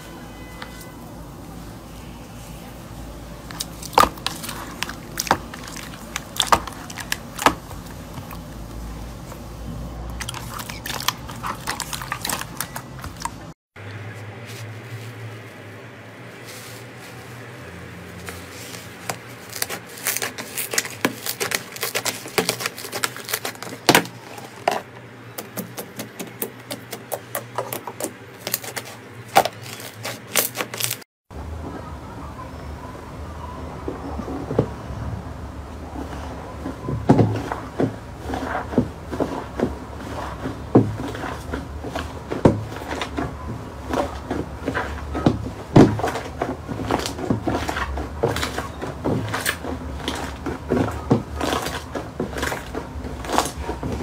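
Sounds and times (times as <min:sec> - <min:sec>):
slime squishing and crackling: 0:03.4 - 0:09.4, 0:10.1 - 0:13.5, 0:18.1 - 0:31.0, 0:36.1 - 0:54.0.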